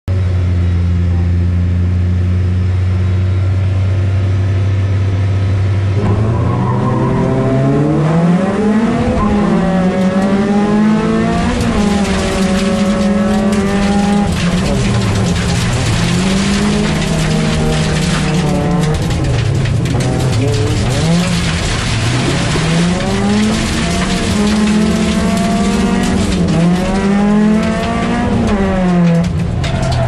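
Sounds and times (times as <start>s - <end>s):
race car engine revving: 5.8s - 30.0s
gravel spraying under car: 10.6s - 29.5s.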